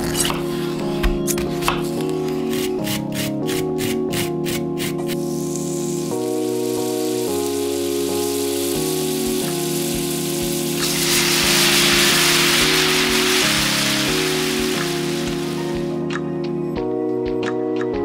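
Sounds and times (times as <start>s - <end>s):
background music: 0.0s - 18.0s
shrimp sizzling in a frying pan: 5.2s - 16.0s.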